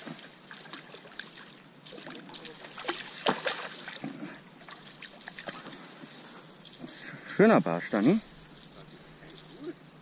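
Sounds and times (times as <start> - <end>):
water splashing and sloshing: 0.0 - 9.8.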